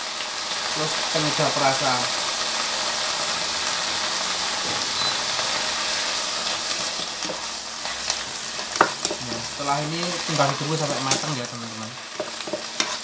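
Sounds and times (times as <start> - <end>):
greens sizzling in a wok: 0.0 - 13.0
spatula tapping and scraping pan: 7.2 - 9.3, 12.1 - 13.0.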